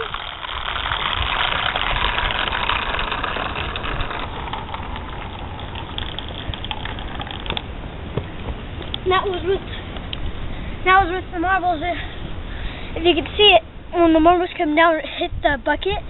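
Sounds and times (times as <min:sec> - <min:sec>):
marbles rattling down a gutter: 0:00.0 - 0:07.6.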